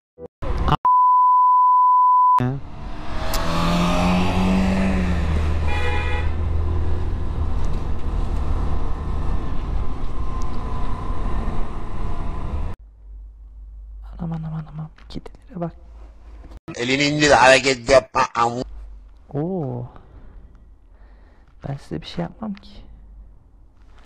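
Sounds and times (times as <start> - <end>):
censor bleep: 0.8 - 2.5.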